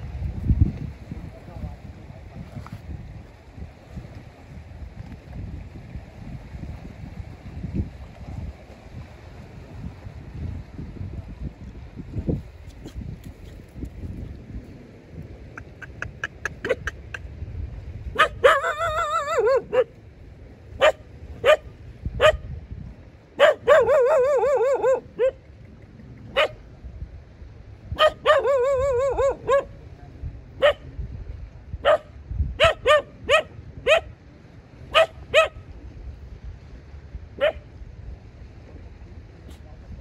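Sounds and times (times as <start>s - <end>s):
dog barking: 18.2s - 19.9s, 20.8s - 22.4s, 23.4s - 25.4s, 26.3s - 26.6s, 28.0s - 29.7s, 30.6s - 30.9s, 31.8s - 34.1s, 34.9s - 35.6s, 37.4s - 37.6s
dog yowling: 18.2s - 19.9s, 23.4s - 25.4s, 28.0s - 29.7s.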